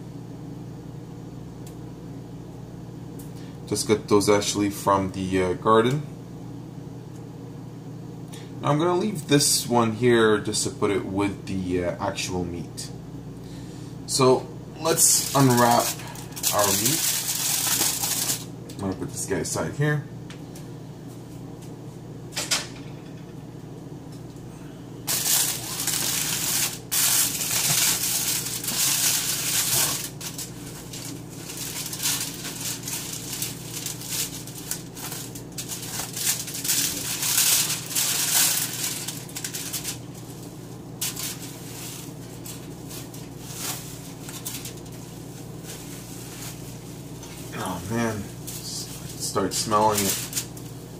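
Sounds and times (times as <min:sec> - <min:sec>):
steady low hum: 0:00.0 - 0:50.9
plastic wrap crinkling: 0:14.8 - 0:18.5, 0:25.0 - 0:50.9.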